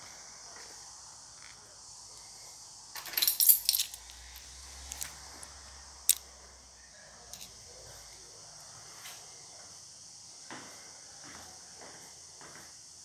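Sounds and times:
keys jangling: 3.0 - 4.2.

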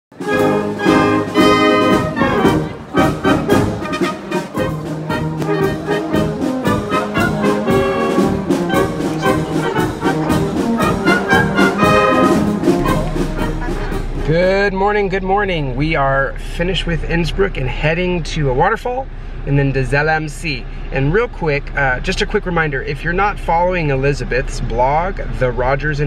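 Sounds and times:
brass band playing: 0.1 - 14.6
low rumble: 0.6 - 26.0.

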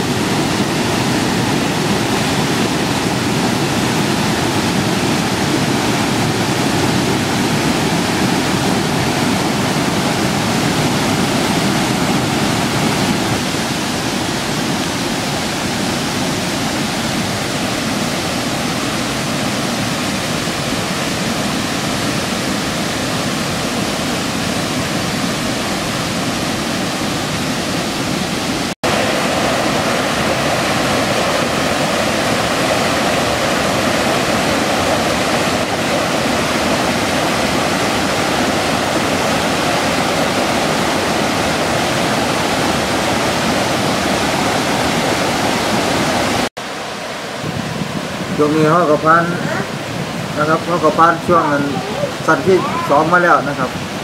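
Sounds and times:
stream pouring over rocks: 0.0 - 54.0.

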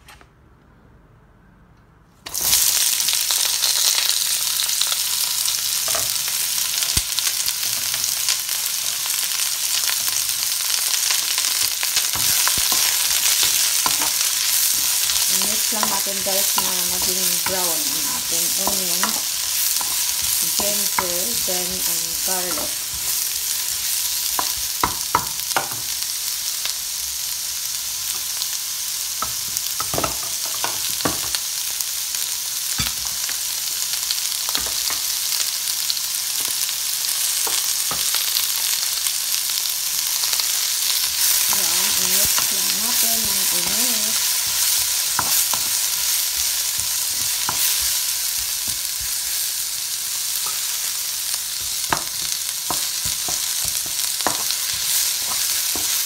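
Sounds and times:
onions sizzling in hot oil: 2.2 - 56.0
wooden spoon stirring: 12.2 - 23.2.

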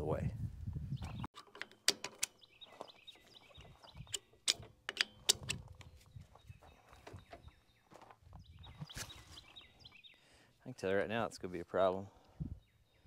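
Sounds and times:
sharp clicks and knocks: 1.3 - 6.0.

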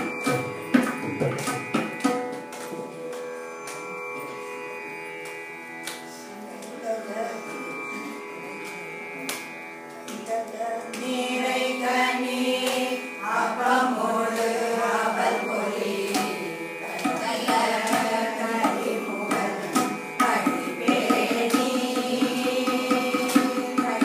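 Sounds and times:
women singing in unison: 10.8 - 24.0.

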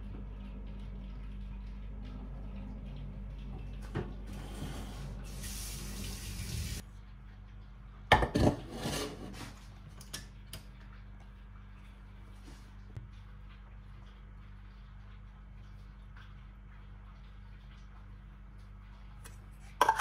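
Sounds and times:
pan clattering on metal hob: 19.8 - 20.0.

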